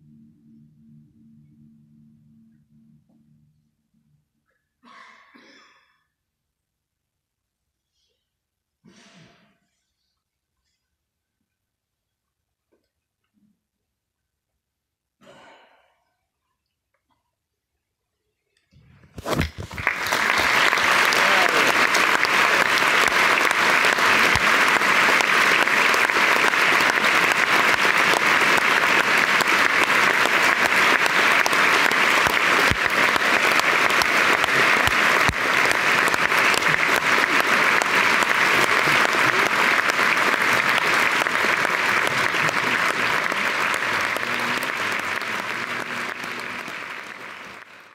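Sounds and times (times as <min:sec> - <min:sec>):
audience applauding: 0:19.2 - 0:47.9.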